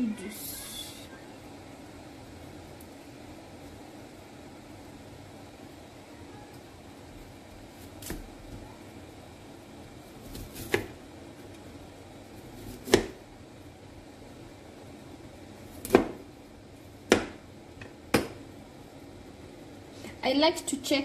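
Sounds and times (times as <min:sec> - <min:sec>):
knife chopping on cutting board: 0:10.3 - 0:11.0, 0:12.6 - 0:13.2, 0:15.8 - 0:16.2, 0:17.1 - 0:17.4, 0:18.1 - 0:18.4.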